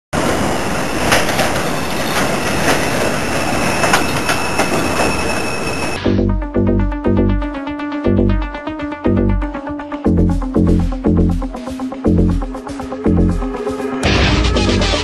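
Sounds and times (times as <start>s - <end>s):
train wheel and rail noise: 0.1s - 6.0s
high squeal of wheels: 0.8s - 6.0s
sharp clacks of rails: 1.0s - 5.4s
electronic music with heavy beat: 6.0s - 15.0s.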